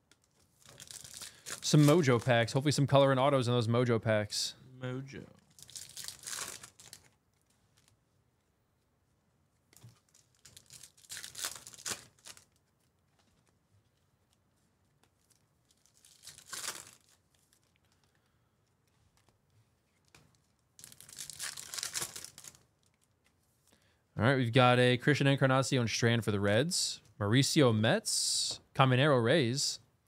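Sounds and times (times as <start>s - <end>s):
plastic wrappers tearing and crinkling: 0.1s - 2.5s, 5.5s - 8.0s, 9.7s - 13.6s, 15.1s - 18.1s, 19.9s - 23.2s.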